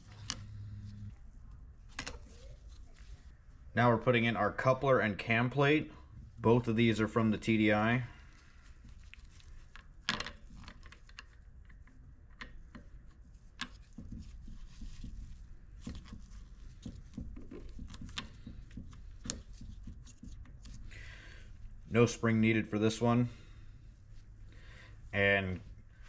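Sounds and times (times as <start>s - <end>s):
faint low hum: 0.0s - 9.2s.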